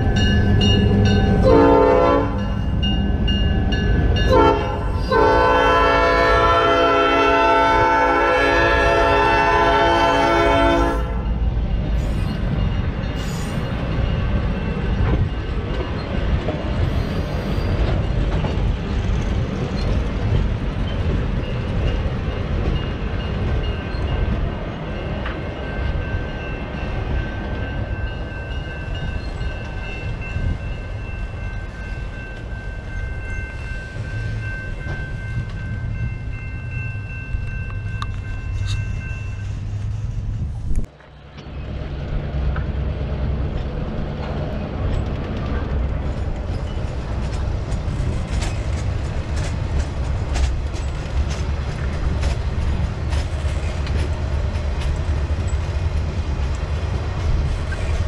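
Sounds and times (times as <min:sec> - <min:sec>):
freight train rumbling past: 0:00.0 - 0:58.0
wheels clicking over rail joints: 0:43.5 - 0:58.0.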